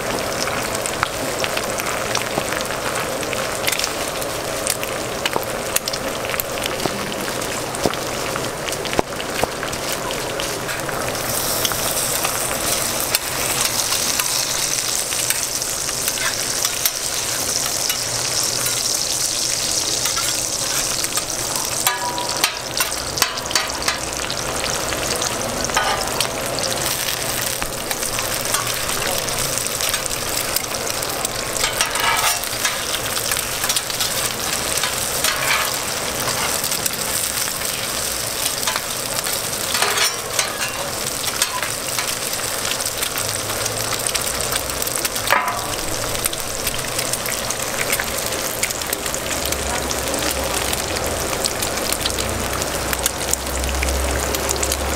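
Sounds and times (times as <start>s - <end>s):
food sizzling on a griddle: 0.0s - 54.9s
metal spatulas scraping griddle: 20.0s - 21.2s, 31.6s - 33.0s, 33.6s - 36.6s, 39.7s - 42.1s.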